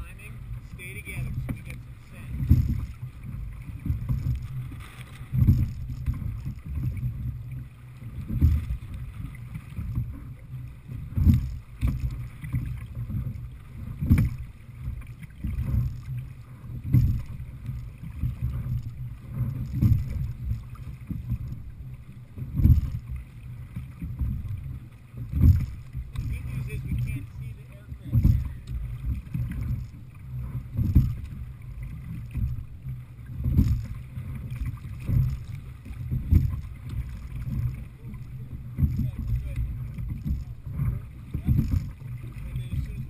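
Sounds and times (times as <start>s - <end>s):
wind buffeting microphone: 0.0s - 10.2s
water rushing past boat: 0.0s - 43.0s.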